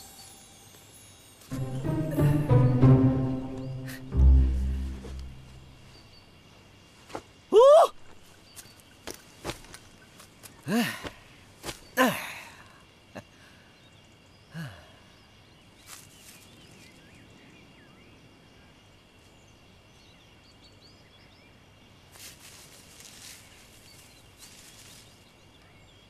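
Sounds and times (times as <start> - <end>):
small birds chirping: 2.6 - 26.0
grass and leaves rustling: 4.1 - 12.6, 15.5 - 17.4, 21.8 - 26.0
man sighing: 10.7 - 11.2, 12.0 - 12.8, 14.5 - 15.0.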